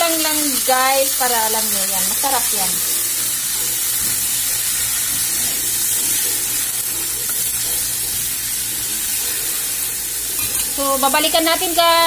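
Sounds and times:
fish sizzling in oil: 0.0 - 12.0.

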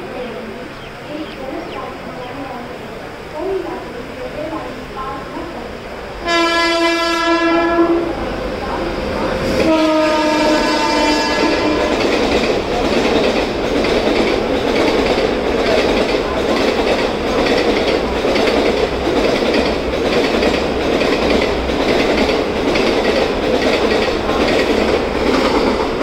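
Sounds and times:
train rumble: 0.0 - 26.0
train wheels clattering over rail joints: 10.6 - 26.0.

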